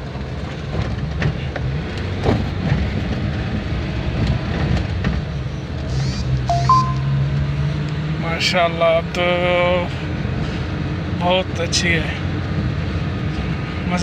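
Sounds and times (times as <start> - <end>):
car engine and road noise: 0.0 - 14.0
short two-note tone: 6.5 - 7.3.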